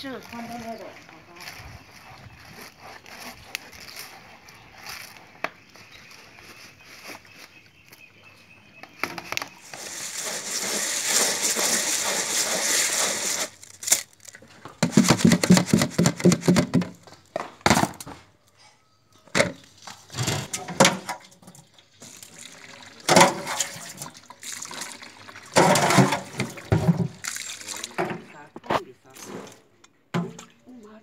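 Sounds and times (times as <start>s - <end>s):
seeds rattling in plastic colander: 9.6s - 16.8s
metal scoop scraping metal pot: 9.6s - 16.9s, 19.8s - 22.3s, 23.1s - 24.0s, 25.5s - 28.2s.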